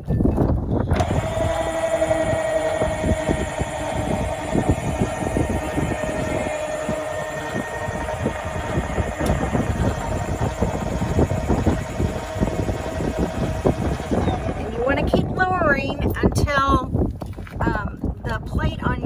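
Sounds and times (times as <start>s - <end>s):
rattling gear rumble: 0.0s - 16.2s
electric motor whine: 0.9s - 16.0s.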